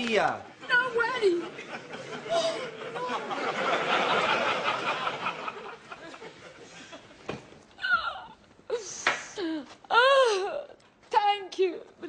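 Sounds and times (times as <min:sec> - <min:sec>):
audience laughter: 0:01.2 - 0:07.2
woman wailing cry: 0:07.8 - 0:08.4, 0:09.4 - 0:10.8.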